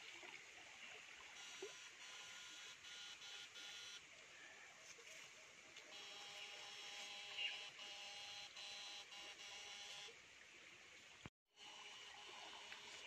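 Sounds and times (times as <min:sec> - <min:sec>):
faint steady whines: 0:01.2 - 0:04.1, 0:05.8 - 0:10.2, 0:11.6 - 0:13.0.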